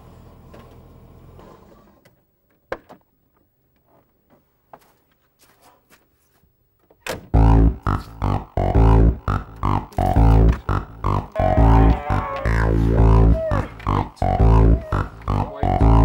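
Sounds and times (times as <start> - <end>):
loud music: 7.4 - 16.0.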